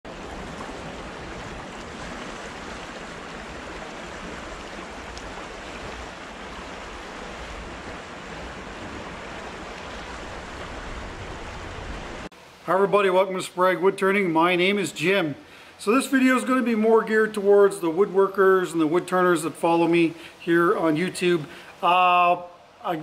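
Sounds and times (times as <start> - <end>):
river water rushing over rapids: 0.1 - 12.7.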